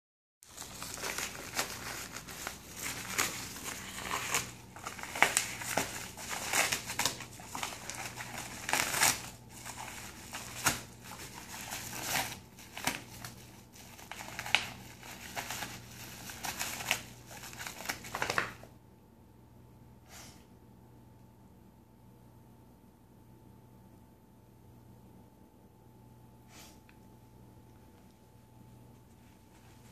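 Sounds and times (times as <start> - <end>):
dog ripping paper envelope: 0.5 - 18.7.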